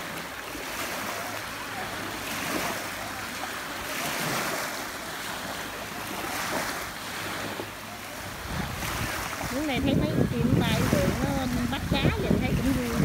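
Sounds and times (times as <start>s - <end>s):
small waves lapping on sand: 0.0s - 13.0s
wind noise on microphone: 8.2s - 13.0s.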